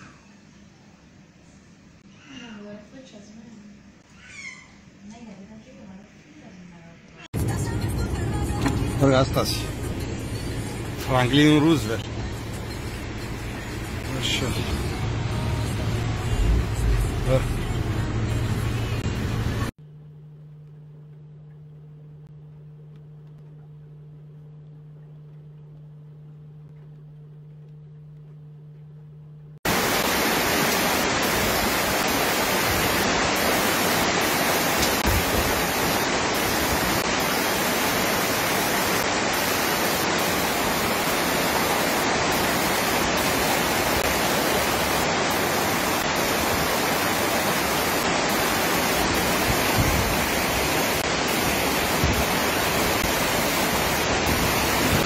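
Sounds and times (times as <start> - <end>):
rushing floodwater and downpour: 13.3 - 17.7, 29.7 - 55.0.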